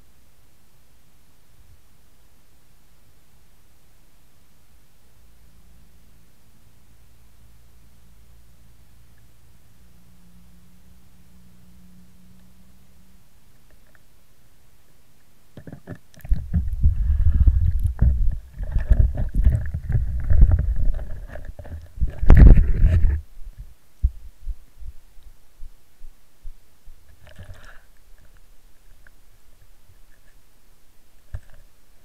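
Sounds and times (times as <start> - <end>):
faint clicks: 13.5 - 14.1
camera handling rumble and knocks: 15.6 - 23.2.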